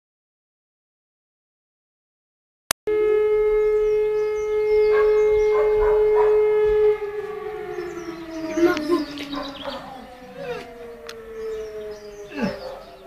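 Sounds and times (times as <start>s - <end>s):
warning siren: 2.9s - 13.0s.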